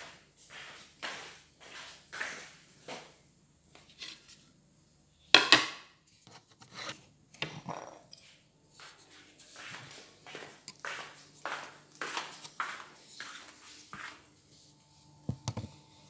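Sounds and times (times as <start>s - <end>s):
objects handled on a table: 15.2s - 15.8s.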